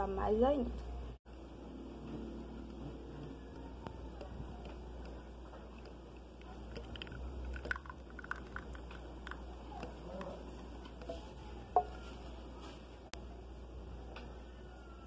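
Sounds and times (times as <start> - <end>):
hot chocolate pouring into mug: 4.0 - 12.0.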